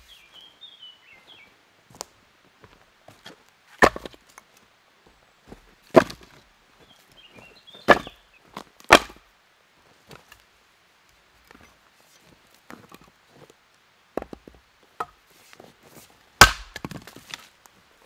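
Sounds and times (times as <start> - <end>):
axe splitting log: 3.8 - 4.2, 5.9 - 6.4, 7.9 - 8.2, 8.9 - 9.2, 16.4 - 17.4
firewood knocking on stack: 3.8 - 4.2, 5.9 - 6.4, 7.9 - 8.1, 8.9 - 9.2, 14.2 - 15.2, 16.4 - 17.4.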